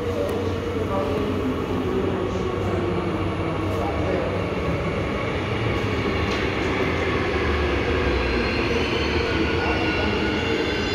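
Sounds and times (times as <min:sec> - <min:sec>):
electric train rumbling and braking: 0:00.0 - 0:10.9.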